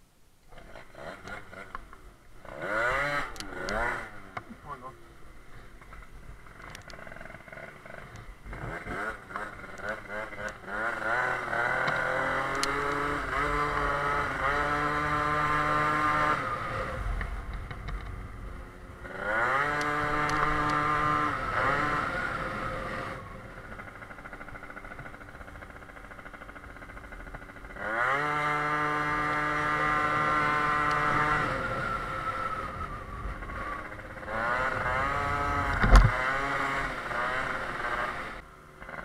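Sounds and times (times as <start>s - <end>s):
two-stroke scooter engine revving: 0.5s - 39.0s.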